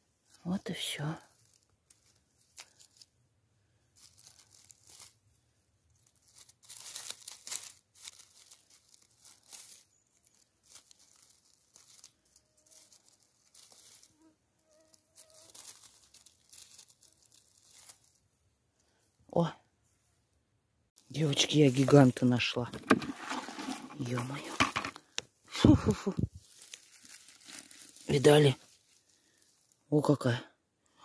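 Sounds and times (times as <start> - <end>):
footsteps crunching through dry leaves: 4.0 - 5.2, 6.0 - 14.2, 14.9 - 18.2, 22.8 - 24.9, 26.3 - 29.8.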